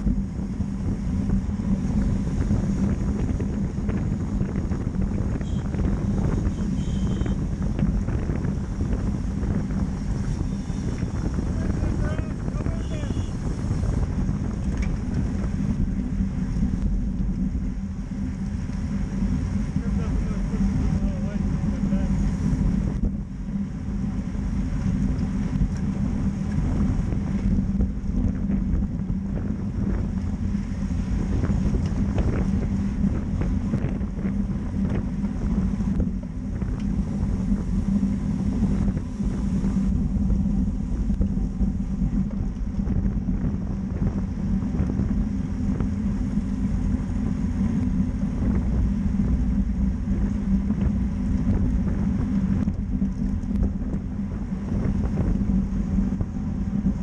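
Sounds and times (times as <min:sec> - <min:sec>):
steady low hum: 0:00.0 - 0:57.0
wind buffeting microphone: 0:00.0 - 0:57.0.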